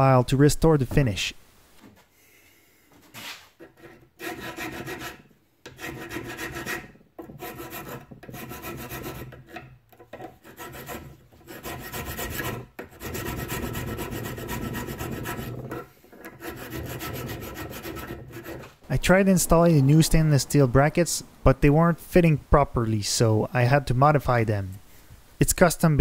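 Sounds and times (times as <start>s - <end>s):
hand file rasping on metal: 3.1s - 18.8s.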